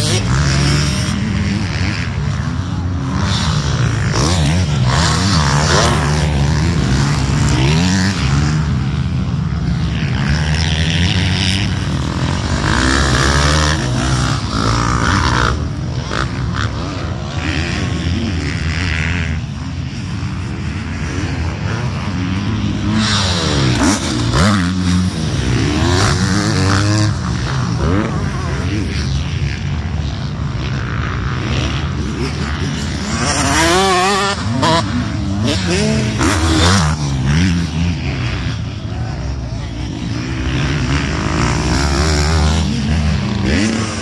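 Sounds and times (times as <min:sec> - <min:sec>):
dirt bike engines revving: 0:00.0 - 0:44.0.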